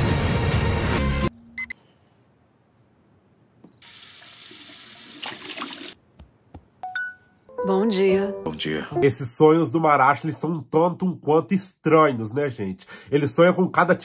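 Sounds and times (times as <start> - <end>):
tap water running into sink: 3.8 - 6.0
background music: 6.8 - 9.6.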